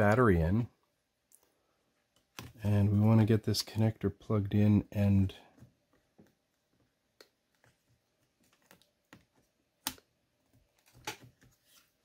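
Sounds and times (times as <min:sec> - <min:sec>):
small clicks and taps: 0:05.5 - 0:11.4.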